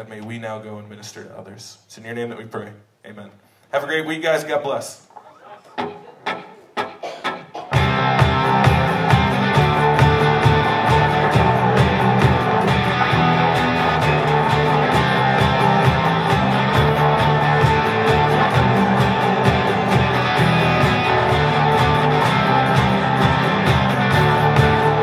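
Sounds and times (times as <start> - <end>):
guitars: 5.6 - 25.0
even drum beat: 5.8 - 25.0
bass line: 7.8 - 25.0.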